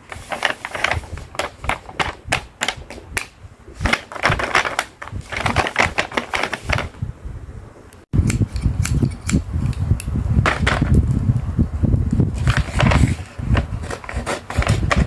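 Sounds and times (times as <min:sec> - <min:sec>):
paper rustling: 0:00.0 - 0:03.2, 0:03.8 - 0:07.0, 0:12.3 - 0:15.0.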